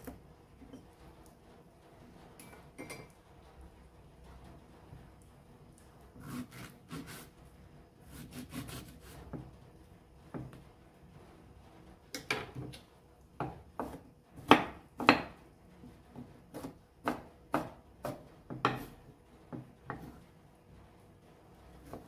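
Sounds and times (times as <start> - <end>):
knife chopping on wooden board: 13.4 - 15.4, 16.2 - 20.1.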